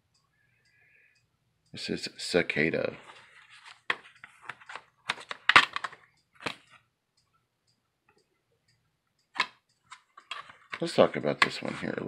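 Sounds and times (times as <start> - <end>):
plastic case clicking and cracking: 3.9 - 6.7.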